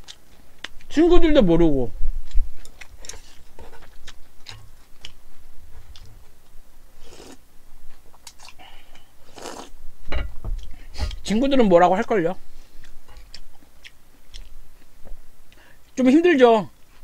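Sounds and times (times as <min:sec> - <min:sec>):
slurping noodles: 0:07.0 - 0:07.4, 0:09.2 - 0:09.7.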